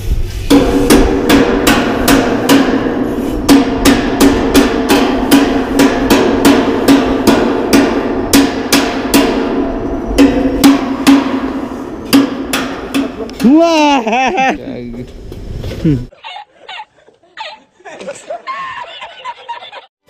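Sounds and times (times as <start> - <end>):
hammer striking steel: 0.5 - 13.6.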